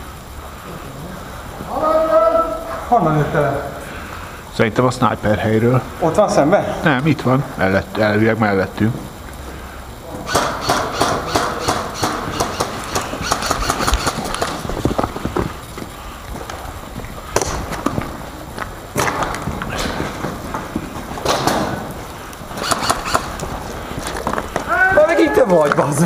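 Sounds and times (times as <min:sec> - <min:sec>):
running footsteps: 0:00.0 - 0:26.0
sharp knocks: 0:10.2 - 0:15.0.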